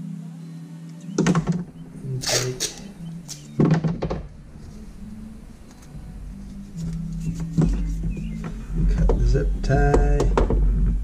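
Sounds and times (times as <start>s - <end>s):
steady low hum: 1.2s - 11.0s
scraping rustle: 4.6s - 8.7s.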